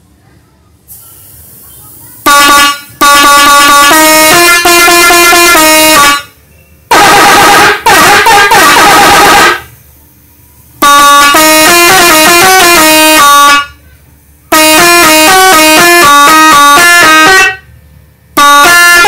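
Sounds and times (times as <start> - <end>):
horn melodies: 2.2 - 6.3, 6.9 - 9.7, 10.8 - 13.8, 14.5 - 17.7, 18.4 - 19.0.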